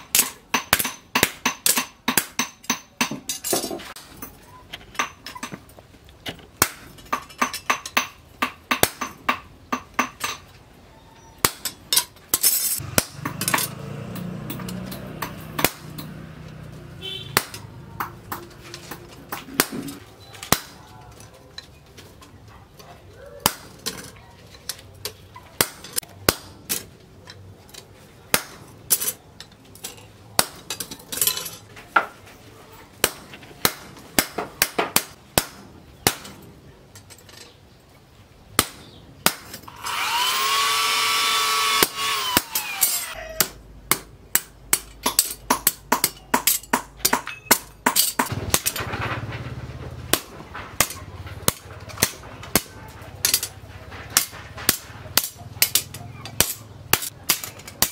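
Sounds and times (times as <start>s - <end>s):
hammer striking chisel on hot steel: 0.0s - 5.7s, 6.6s - 10.5s, 11.4s - 16.4s, 17.0s - 20.8s, 23.4s - 23.9s, 25.1s - 26.9s, 28.3s - 29.2s, 30.4s - 31.4s, 33.0s - 36.4s, 38.6s - 40.5s, 41.3s - 48.8s, 50.1s - 57.9s.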